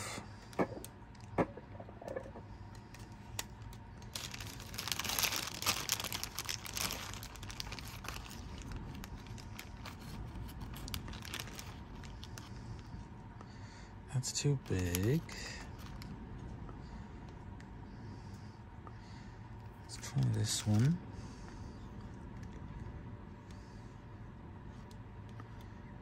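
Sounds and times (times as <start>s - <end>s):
plastic bag crinkling: 2.9s - 12.9s, 14.6s - 16.1s.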